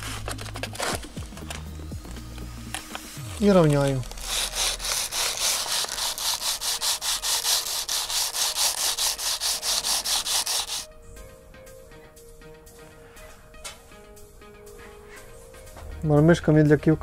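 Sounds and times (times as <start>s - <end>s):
plastic rasping on sandpaper: 0.0s - 1.5s, 2.8s - 10.9s.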